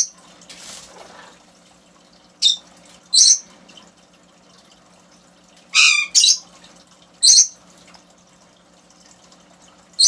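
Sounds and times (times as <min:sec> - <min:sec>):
bird squawking: 0:05.7 - 0:06.5.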